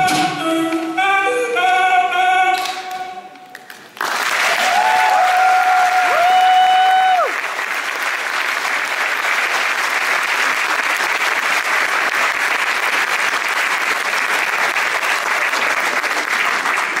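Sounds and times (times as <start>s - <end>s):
audience applauding: 3.5s - 17.0s.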